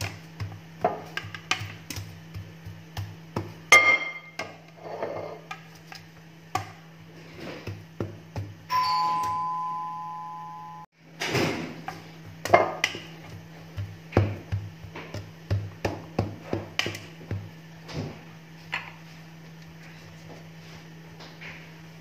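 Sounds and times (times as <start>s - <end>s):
electronic two-tone chime: 8.7s - 10.9s.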